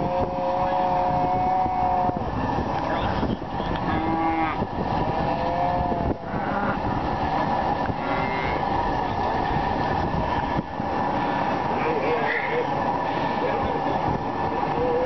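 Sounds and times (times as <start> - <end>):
steady background noise: 0.0 - 15.0
calves bawling: 11.8 - 12.7.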